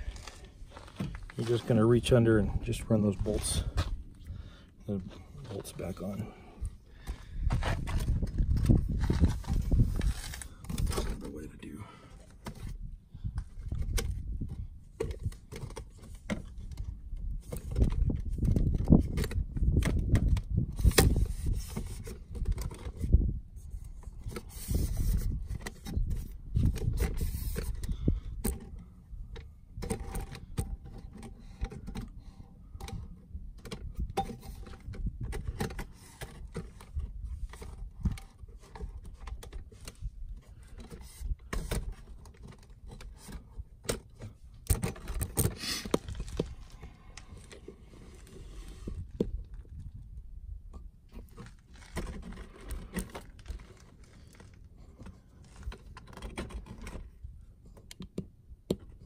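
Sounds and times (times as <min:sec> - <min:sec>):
rustling handling noise: 0:00.0 - 0:04.2, 0:07.0 - 0:11.4, 0:33.6 - 0:50.0, 0:51.1 - 0:57.2.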